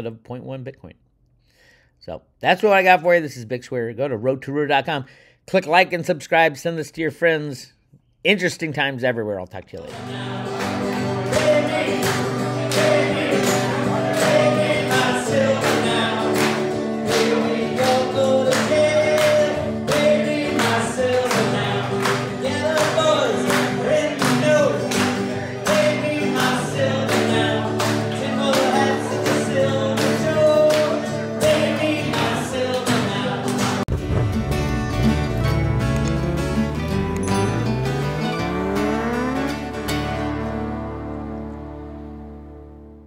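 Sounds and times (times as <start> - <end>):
person singing: 9.9 - 41.8
strummed acoustic guitar: 9.9 - 43.0
steady beat: 33.9 - 40.1.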